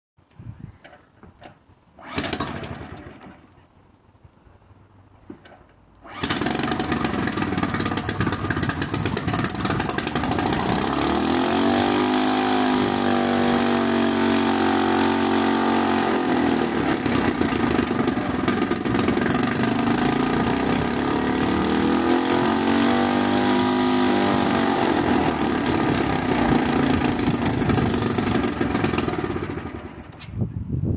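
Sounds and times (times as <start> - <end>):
outboard motor running and revving: 6.1 - 29.9.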